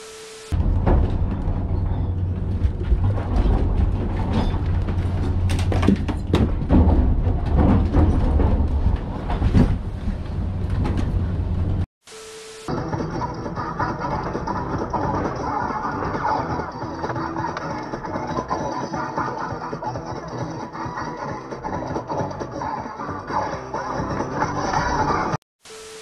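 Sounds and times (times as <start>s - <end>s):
objects knocking and clattering: 0.6s - 11.2s.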